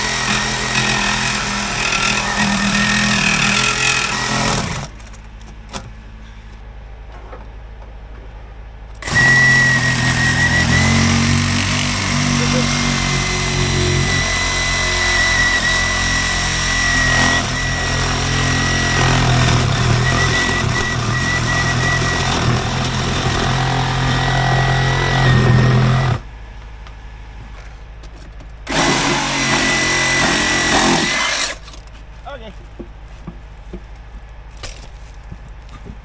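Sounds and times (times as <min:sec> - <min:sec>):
power saw cutting tire: 0:00.0 - 0:05.0, 0:09.0 - 0:26.3, 0:28.6 - 0:31.8.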